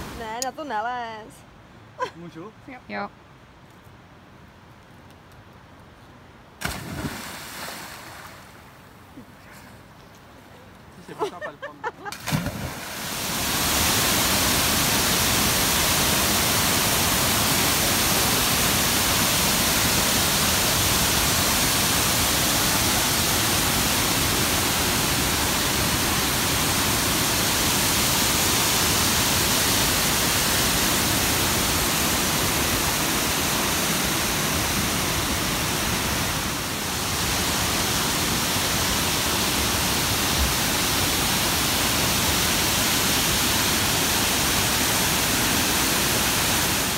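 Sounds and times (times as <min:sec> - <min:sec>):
waterfall rushing over rock: 0:00.0 - 0:00.2, 0:12.3 - 0:46.9.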